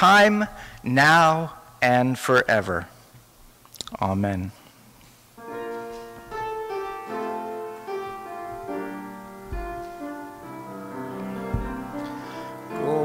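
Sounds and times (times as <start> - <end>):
piano playing slow chords: 5.4 - 13.0
low thumps: 8.1 - 12.2.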